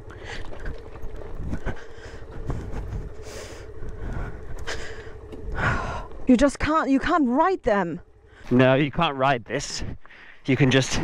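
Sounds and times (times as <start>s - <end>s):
wheels rattling over rocks: 0.0s - 5.3s.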